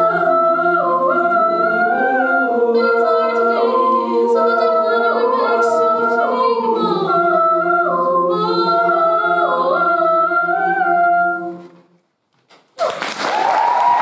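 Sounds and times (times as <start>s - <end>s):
women's choir holding a chord: 0.0s - 11.8s
audience applause: 12.8s - 14.0s.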